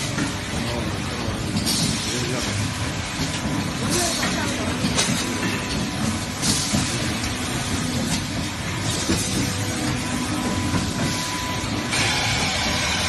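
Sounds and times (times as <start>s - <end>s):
clanks and clicks: 0.0s - 12.5s
factory machinery din: 0.0s - 13.0s
hiss: 11.9s - 13.0s.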